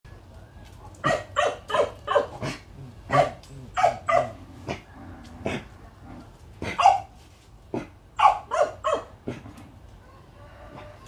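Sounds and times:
dog barking: 1.0s - 4.4s, 6.6s - 7.1s, 8.2s - 9.2s.

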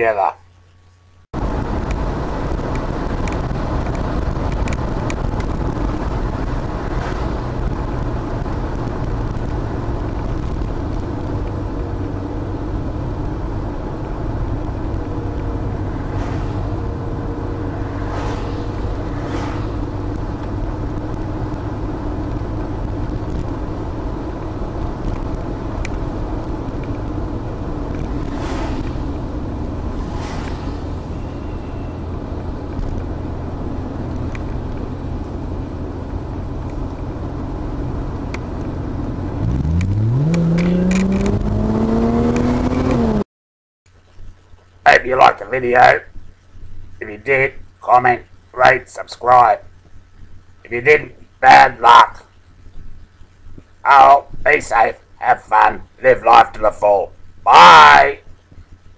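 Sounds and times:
car engine and tyres rumbling: 0.0s - 43.3s, 43.9s - 58.9s
short hisses: 28.2s - 32.0s.

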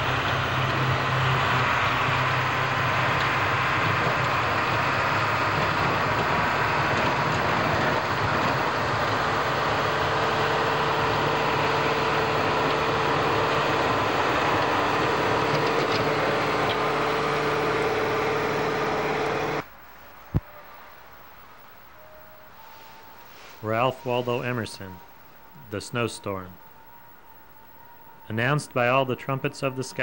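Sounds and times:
plow blade scraping snow: 0.0s - 19.6s, 22.6s - 26.6s
truck engine rumble: 0.0s - 30.0s.

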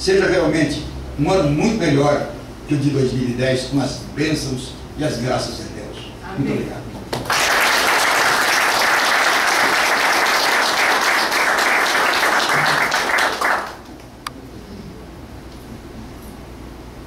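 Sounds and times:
audience applauding: 7.1s - 14.1s.

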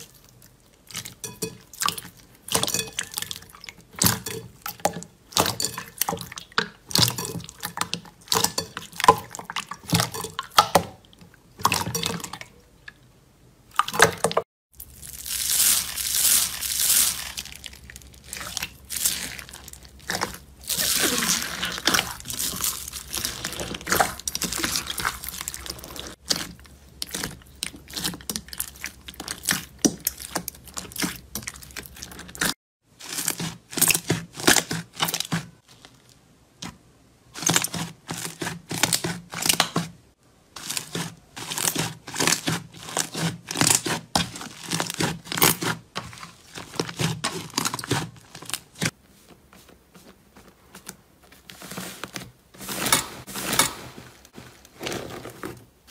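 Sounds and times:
slime squishing: 13.7s - 39.8s, 40.5s - 55.9s.

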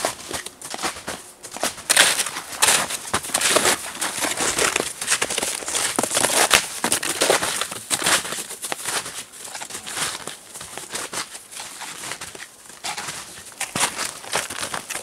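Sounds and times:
footsteps crunching in snow: 0.0s - 15.0s.

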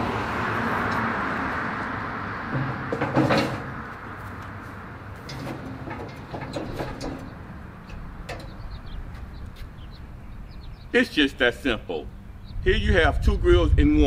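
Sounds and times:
metal grill parts clanking: 2.5s - 9.9s
light metal clicks and rattles: 5.2s - 9.6s.

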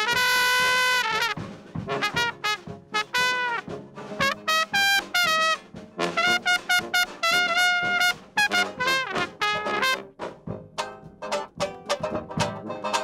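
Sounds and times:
solo jazz trumpet: 0.0s - 10.4s.

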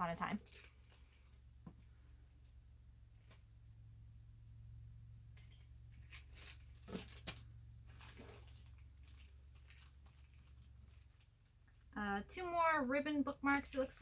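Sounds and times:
plastic packet crinkling: 0.0s - 1.4s, 5.4s - 11.9s
low room hum: 0.0s - 14.0s.

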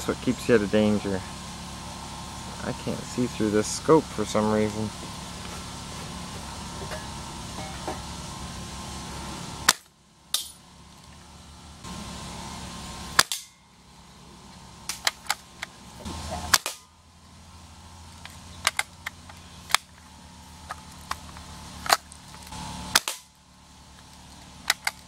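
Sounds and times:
air rifle shots: 13.1s - 13.6s, 16.5s - 16.8s, 22.9s - 23.3s.

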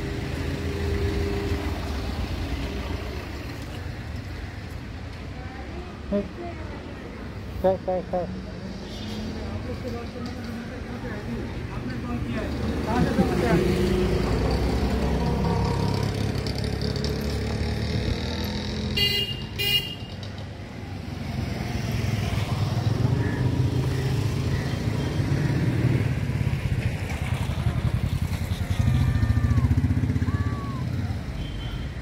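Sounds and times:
horn toots: 18.9s - 20.1s.

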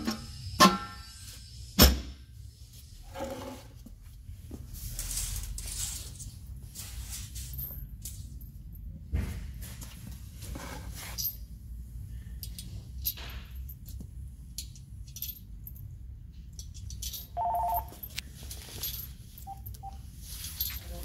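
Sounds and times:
low shop hum: 0.0s - 21.0s
metal washers and nuts clinking: 4.9s - 9.0s, 10.5s - 11.6s, 12.2s - 21.0s
two-tone electronic beep: 17.4s - 17.9s.

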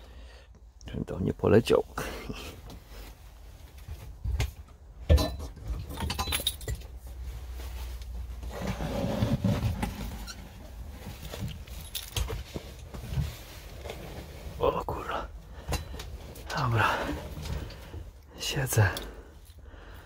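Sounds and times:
low shuffling rumbles: 1.0s - 20.0s
metallic clinks and rattles: 5.1s - 7.0s, 11.1s - 12.9s.

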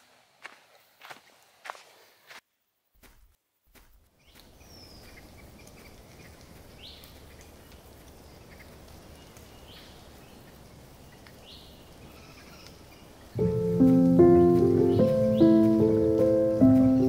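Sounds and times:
bird chirps: 4.2s - 17.0s.

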